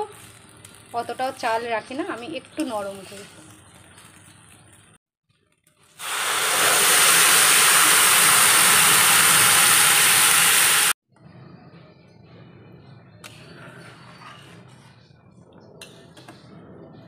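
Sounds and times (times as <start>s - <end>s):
water hissing in hot pan: 6.0s - 11.0s.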